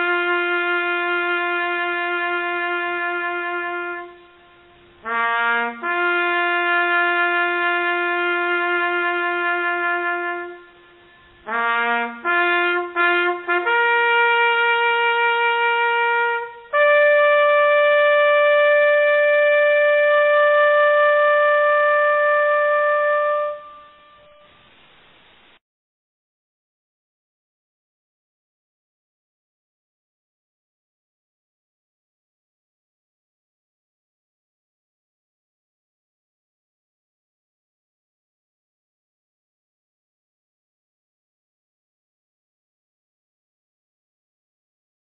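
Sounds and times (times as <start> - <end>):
brass horn bugle call: 0.0 - 24.6.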